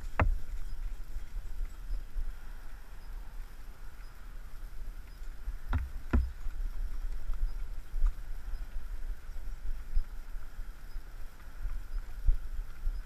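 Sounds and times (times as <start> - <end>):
hoof thuds: 0.0 - 1.0, 5.2 - 7.4
wind rumble on microphone: 0.0 - 13.0
sharp knocks: 0.2 - 0.4, 5.7 - 6.4.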